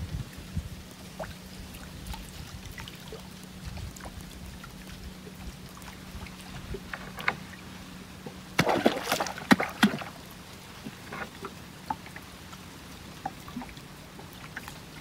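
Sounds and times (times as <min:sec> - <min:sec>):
faint steady hum: 0:00.0 - 0:15.0
soft water sounds: 0:00.0 - 0:15.0
sharp splashes and knocks: 0:06.6 - 0:12.2
baitfish slapping water surface: 0:08.5 - 0:11.6.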